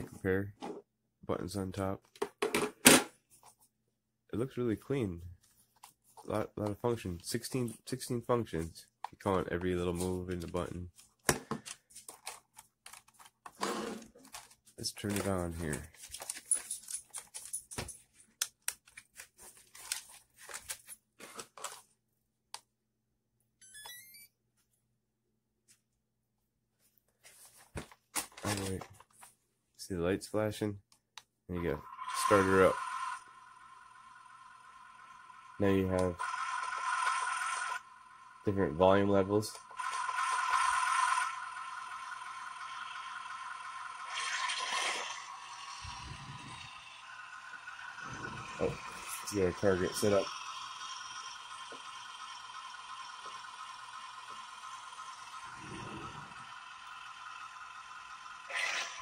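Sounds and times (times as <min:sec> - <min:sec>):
electronic beeps: 0:23.6 - 0:24.3.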